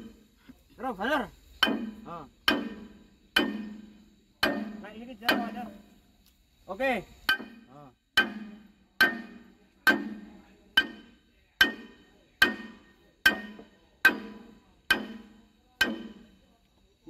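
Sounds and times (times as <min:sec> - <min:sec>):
sledgehammer striking steel: 0:01.6 - 0:05.8, 0:07.3 - 0:16.4.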